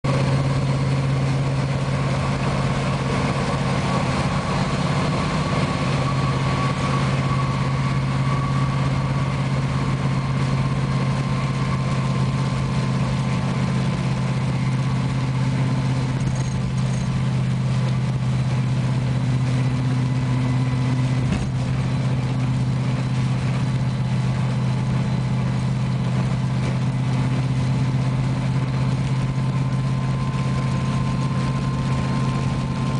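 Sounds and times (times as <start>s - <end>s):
car engine droning: 0.0s - 32.9s
wet road noise: 0.0s - 32.9s.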